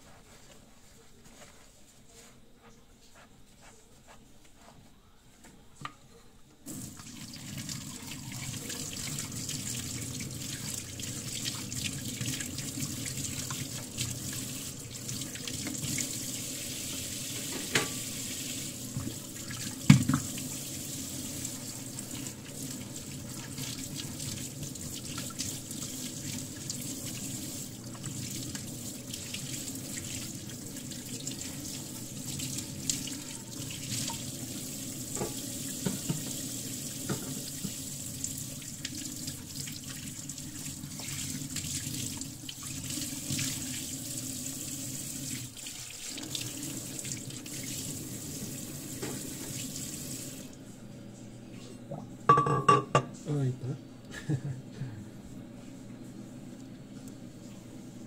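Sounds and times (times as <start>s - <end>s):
running water: 6.7s - 50.6s.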